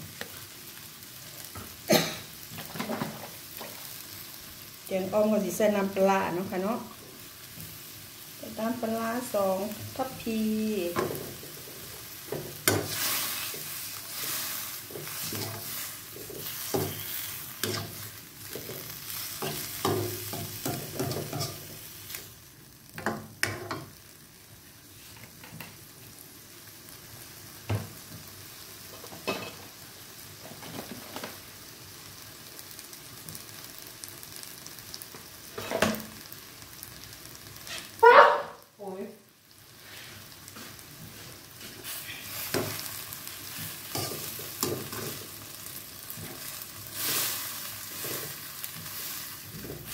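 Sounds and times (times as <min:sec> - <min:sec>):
light sizzle: 0:00.0 - 0:49.9
spatula scraping a wok: 0:10.8 - 0:22.2, 0:39.8 - 0:45.4, 0:46.1 - 0:49.9.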